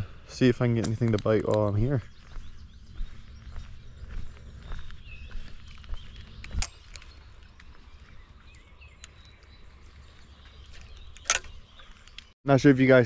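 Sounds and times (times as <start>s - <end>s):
faint bird chirps: 0.0s - 12.4s
light ticks: 0.8s - 1.9s
wind rumble on microphone: 0.8s - 11.8s.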